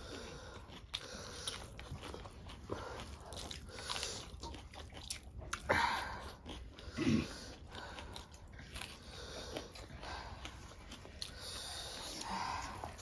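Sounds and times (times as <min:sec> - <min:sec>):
person chewing and biting food: 0:00.0 - 0:13.0.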